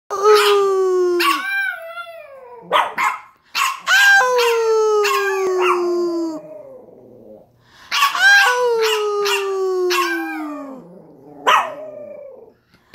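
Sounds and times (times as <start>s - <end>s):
dog yelping: 1.2s - 5.9s, 7.9s - 10.8s, 11.4s - 12.5s
dog howling: 3.9s - 7.4s, 8.0s - 12.6s.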